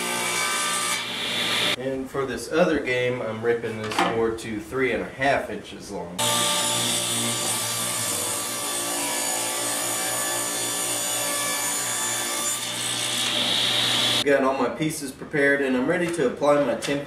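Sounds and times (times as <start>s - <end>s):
table saw cutting wood: 0.0s - 1.8s, 6.2s - 14.2s.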